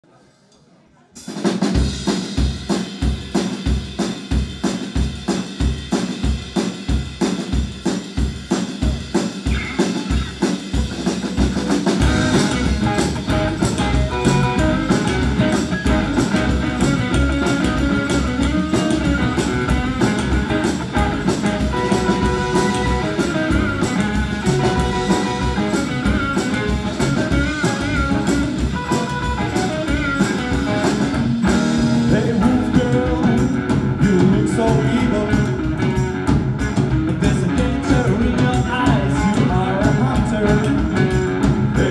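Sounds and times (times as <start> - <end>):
drum kit steady beat: 1.2 - 41.9
guitars playing: 11.3 - 41.9
upright bass: 11.3 - 41.9.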